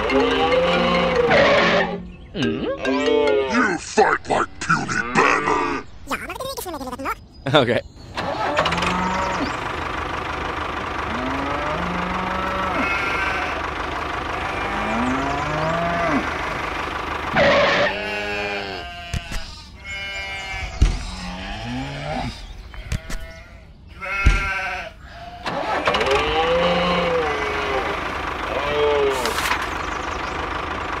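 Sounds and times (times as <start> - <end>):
livestock calls: 0.0 - 3.7, 8.2 - 9.9, 10.9 - 30.2
sharp knocks: 20.7 - 21.2, 24.2 - 24.5.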